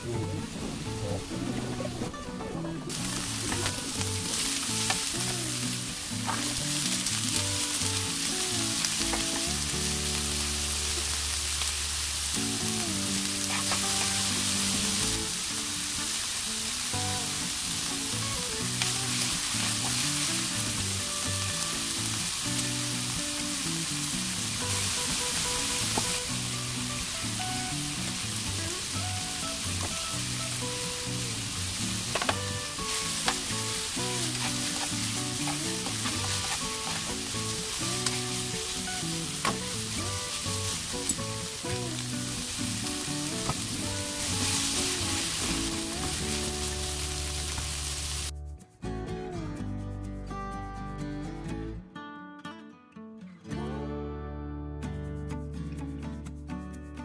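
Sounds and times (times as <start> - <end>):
meat sizzling in hot oil: 2.9 - 48.3
tongs stirring in pan: 13.4 - 14.5, 32.1 - 41.3.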